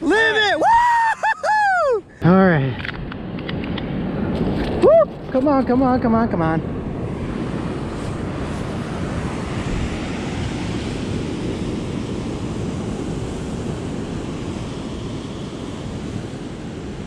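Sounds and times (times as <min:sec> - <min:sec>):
wind on microphone: 0:02.6 - 0:17.0
ocean surf washing up: 0:03.2 - 0:17.0.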